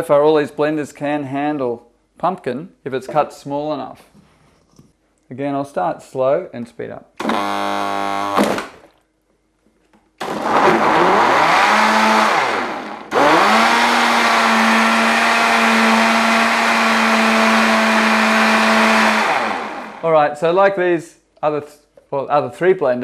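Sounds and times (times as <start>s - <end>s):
blender motor whining: 7.2s - 8.7s, 10.2s - 20.0s.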